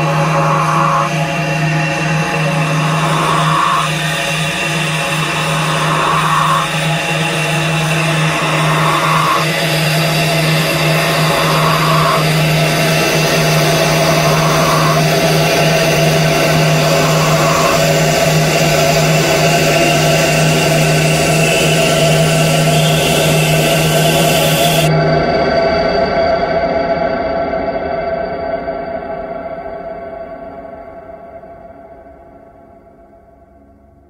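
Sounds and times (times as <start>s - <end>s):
pulsing swelling tone: 0.0s - 24.9s
dark ambient drone music: 0.0s - 34.0s.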